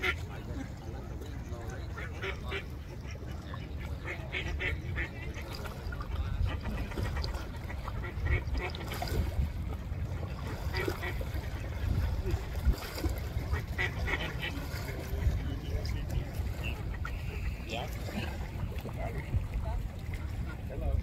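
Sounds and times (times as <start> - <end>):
ducks calling: 1.4 - 9.0, 13.2 - 15.6, 16.4 - 18.5.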